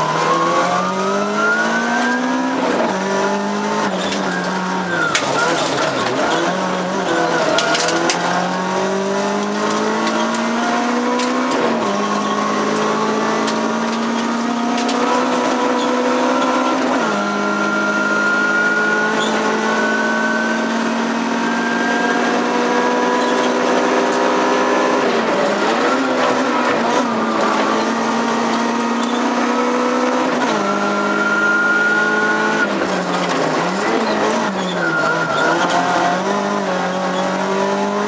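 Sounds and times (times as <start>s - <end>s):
race car engine accelerating: 0.0s - 38.0s.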